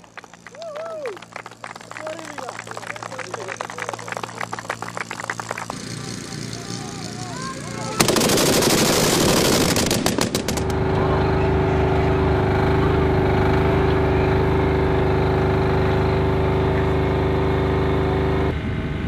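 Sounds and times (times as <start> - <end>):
vehicle engine hum: 0.0 - 19.0
anti-aircraft gun firing: 7.9 - 10.8.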